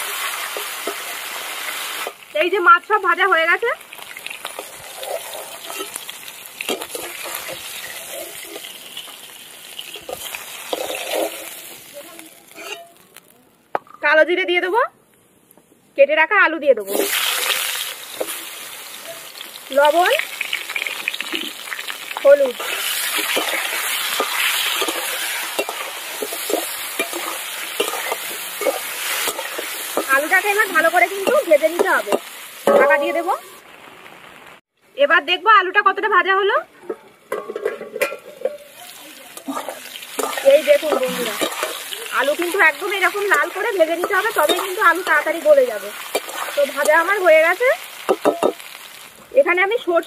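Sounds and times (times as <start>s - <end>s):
oil sizzling in a pan: 0.0s - 13.4s, 16.8s - 34.7s, 35.7s - 50.0s
metal spatula scraping pan: 4.5s - 6.1s, 6.7s - 8.8s, 9.9s - 11.6s, 12.5s - 13.0s, 22.6s - 33.4s, 37.3s - 47.0s.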